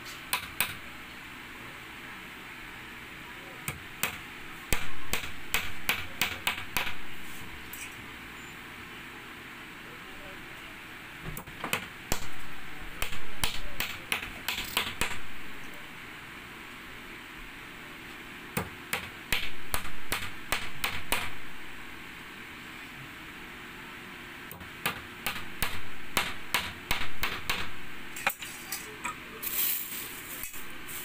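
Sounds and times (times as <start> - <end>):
hammer driving nails into wood: 3.7 - 7.0, 13.0 - 15.3, 18.6 - 21.4, 24.5 - 27.8.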